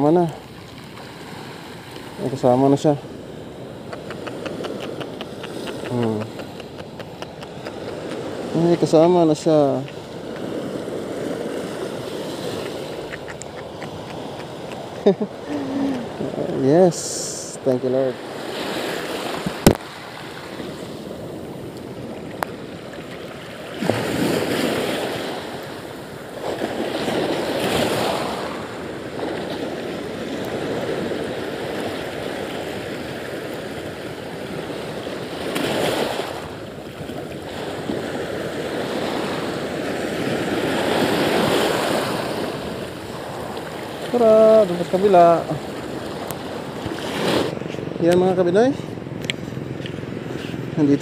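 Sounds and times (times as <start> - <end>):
sea surf washing: 0.0 - 51.0
wind on microphone: 3.4 - 8.9.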